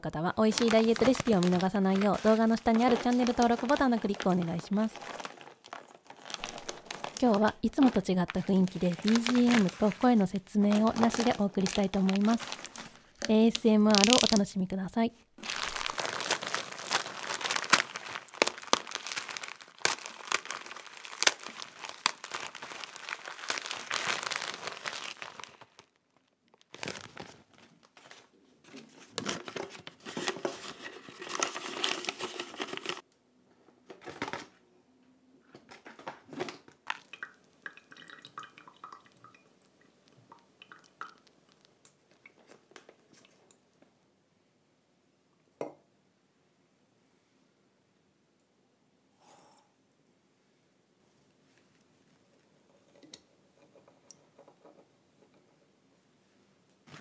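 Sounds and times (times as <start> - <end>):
crunching inside a plastic bag: 0.4 - 14.5, 15.4 - 28.3
paper coffee filter rustling: 0.4 - 14.5, 15.4 - 33.0
faint handling sounds: 0.6 - 14.4.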